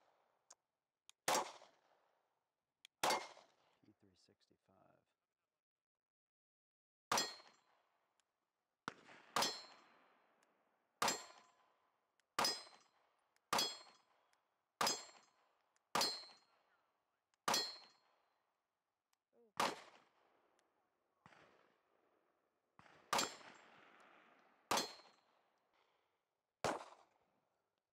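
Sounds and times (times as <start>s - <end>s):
pistol shots: 1.3s - 1.9s, 3.0s - 3.6s, 8.9s - 10.0s, 11.0s - 11.5s, 12.4s - 12.9s, 13.5s - 14.0s, 14.8s - 15.3s, 16.0s - 16.5s, 17.5s - 18.0s, 19.6s - 20.2s, 22.8s - 25.3s, 26.6s - 27.2s.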